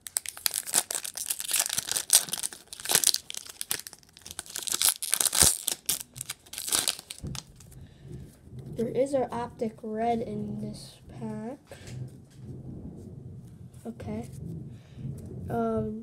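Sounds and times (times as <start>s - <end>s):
foil wrapper tearing and crinkling: 0.0s - 7.8s.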